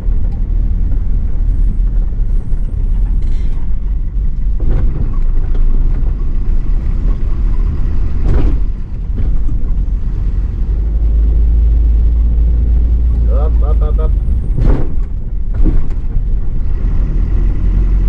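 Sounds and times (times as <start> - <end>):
truck diesel engine rumble: 0.0 - 18.0.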